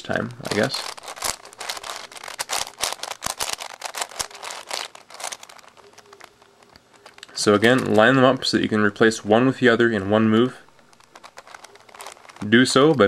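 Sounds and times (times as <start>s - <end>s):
puzzle cube clicking: 0.2s - 8.2s, 10.8s - 13.0s.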